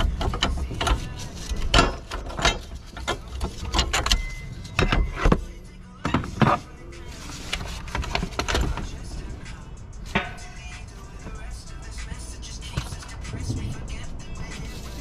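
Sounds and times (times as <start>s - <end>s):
background music: 0.0s - 15.0s.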